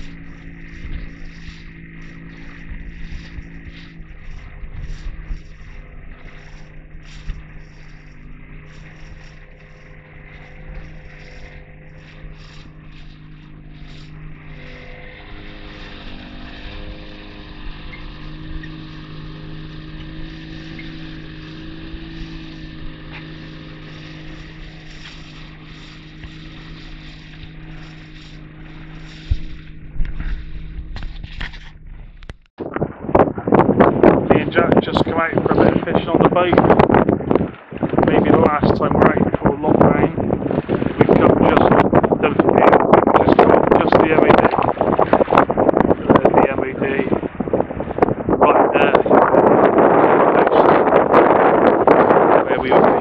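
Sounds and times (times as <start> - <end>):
hull rushing through choppy water: 0.0 - 53.0
outboard motor running: 0.0 - 53.0.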